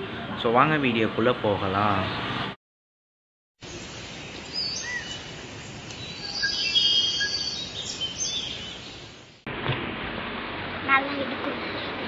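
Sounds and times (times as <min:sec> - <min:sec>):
steady background hiss: 0:03.6 - 0:12.0
birds chirping and whistling: 0:03.7 - 0:09.2.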